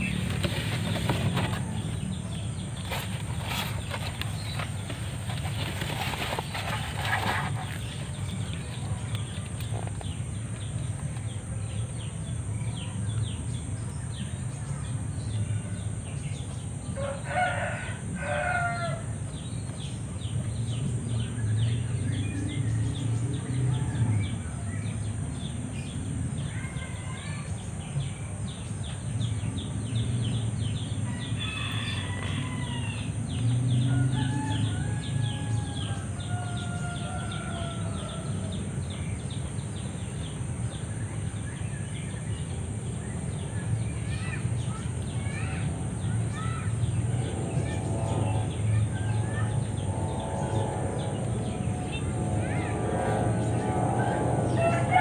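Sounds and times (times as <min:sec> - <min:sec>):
roosters crowing: 0:00.0 - 0:09.4, 0:17.0 - 0:19.2, 0:31.0 - 0:38.9, 0:47.2 - 0:55.0
steady low rumble: 0:45.7 - 0:55.0.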